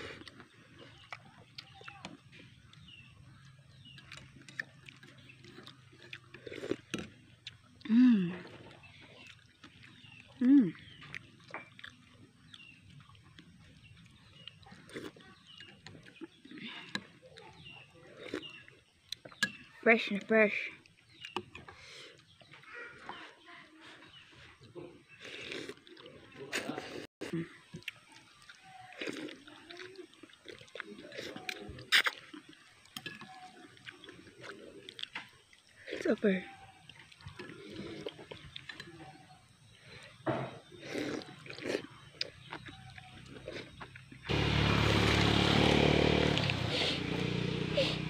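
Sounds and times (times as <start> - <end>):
bird chirping: 0.0 - 25.6, 36.1 - 44.3
slurping noodle soup: 23.8 - 27.1, 28.9 - 36.0, 37.0 - 38.9, 45.2 - 48.0.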